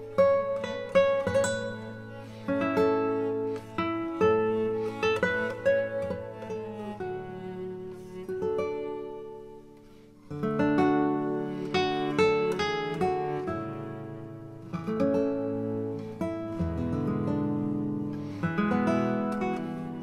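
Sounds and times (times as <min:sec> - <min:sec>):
acoustic guitar music: 0:00.0 - 0:20.0.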